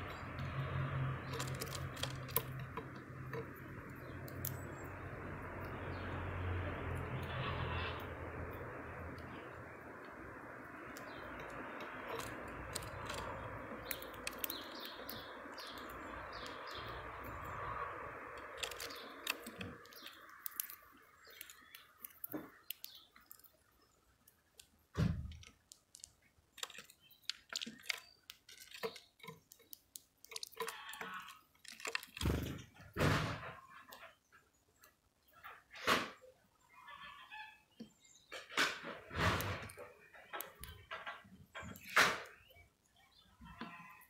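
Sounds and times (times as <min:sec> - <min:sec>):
birds pecking seed: 0:00.0 - 0:36.1, 0:37.1 - 0:44.0.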